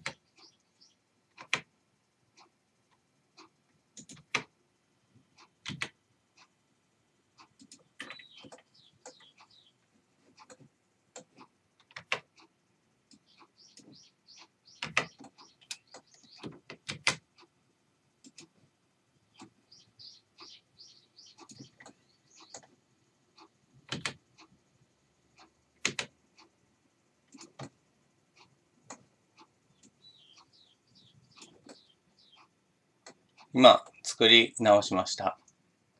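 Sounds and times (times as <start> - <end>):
faint high bird chirps: 0.1 - 1.0, 8.0 - 9.8, 13.2 - 16.5, 19.3 - 22.6, 29.7 - 32.5
computer mouse clicks: 1.3 - 1.7, 2.4 - 4.5, 5.4 - 6.5, 7.4 - 9.6, 10.3 - 12.5, 13.1 - 17.5, 18.2 - 18.6, 23.4 - 24.5, 25.4 - 26.5, 27.3 - 27.8, 31.3 - 34.0.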